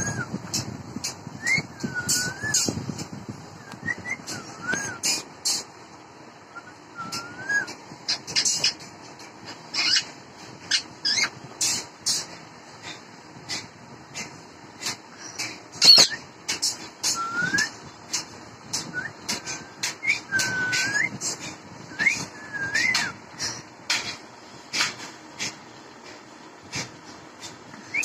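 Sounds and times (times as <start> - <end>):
parakeet whistling: 1.4 - 2.8, 3.7 - 5.6, 6.6 - 8.8, 9.7 - 10.1, 10.7 - 11.4, 15.2 - 16.2, 19.0 - 21.2.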